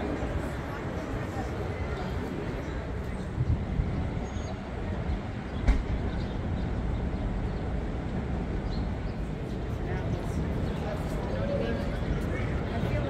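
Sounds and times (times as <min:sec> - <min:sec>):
traffic rumble: 0:00.0 - 0:13.0
sharp thump: 0:05.6 - 0:06.0.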